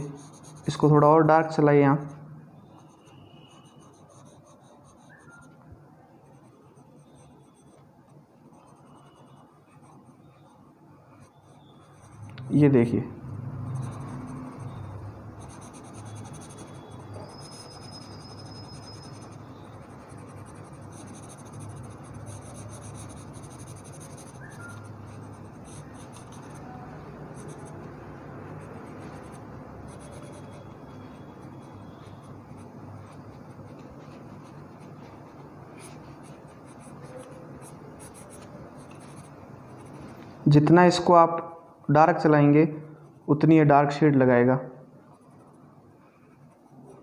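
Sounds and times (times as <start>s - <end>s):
pencil scratching on paper: 0.0s - 40.2s, 45.1s - 45.7s.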